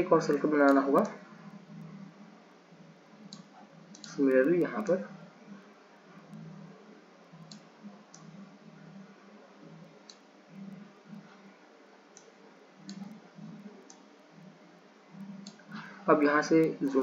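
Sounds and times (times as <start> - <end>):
computer mouse clicks: 3.2 - 4.9, 7.4 - 8.4, 10.0 - 10.8, 12.1 - 14.1, 15.2 - 15.8.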